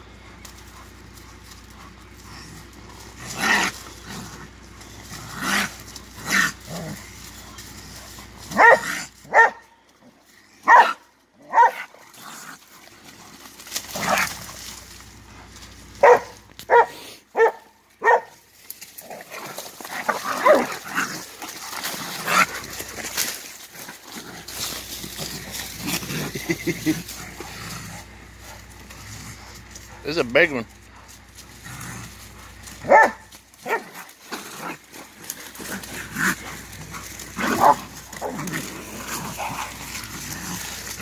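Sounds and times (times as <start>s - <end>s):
dog barking sharply: 8.6s - 9.6s, 10.7s - 11.8s, 16.0s - 18.4s, 32.9s - 33.8s.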